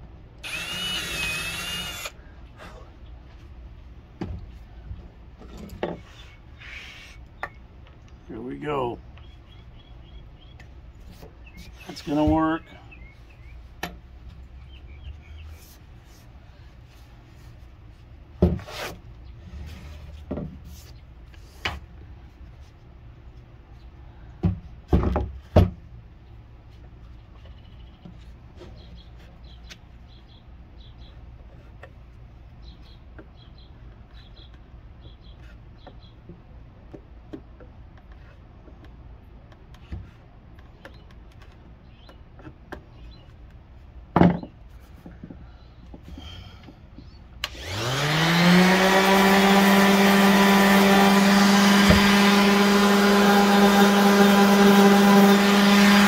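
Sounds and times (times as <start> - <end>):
wood and tools knocking: 44.1 - 47.1.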